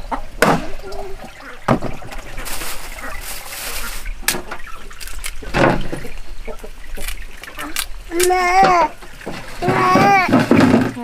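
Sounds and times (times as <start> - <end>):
plastic bag crinkling: 2.3 - 4.2.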